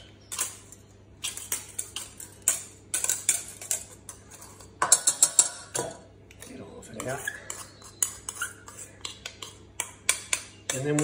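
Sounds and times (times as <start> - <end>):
whisk clinking in a bowl: 7.0 - 11.0.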